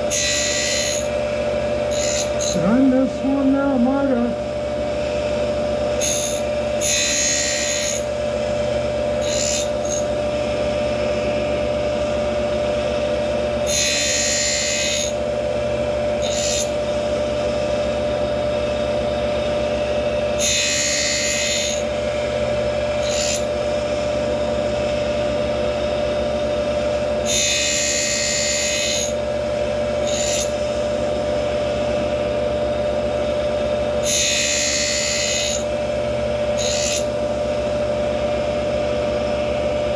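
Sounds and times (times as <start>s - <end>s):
grinder whining: 0.0s - 39.9s
wheel grinding metal teeth: 0.1s - 1.2s, 1.8s - 4.2s, 6.0s - 8.1s, 9.2s - 10.1s, 13.6s - 15.2s, 16.2s - 16.8s, 20.4s - 21.9s, 23.0s - 23.5s, 30.0s - 30.6s, 34.0s - 35.7s, 36.6s - 37.2s.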